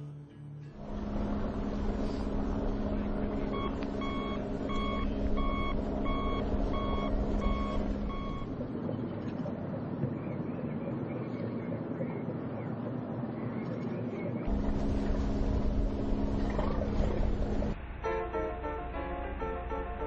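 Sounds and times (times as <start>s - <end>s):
vehicle back-up alarm beeping: 0.8s - 8.7s
heavy vehicle engine running: 0.8s - 8.8s, 14.5s - 20.0s.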